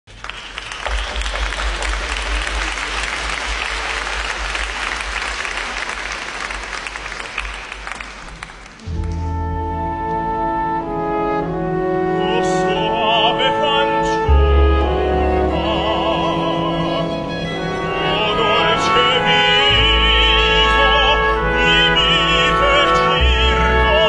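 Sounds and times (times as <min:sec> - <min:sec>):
audience applauding: 0:00.1 - 0:09.1
orchestra playing held chords: 0:08.8 - 0:24.0.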